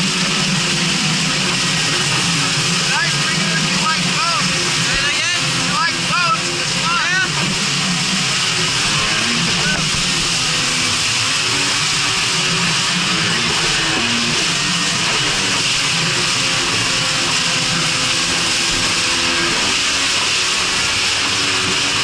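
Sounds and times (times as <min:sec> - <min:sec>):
jet ski engine running: 0:00.0 - 0:22.0
water spray rushing: 0:00.0 - 0:22.0
wind: 0:00.0 - 0:22.0.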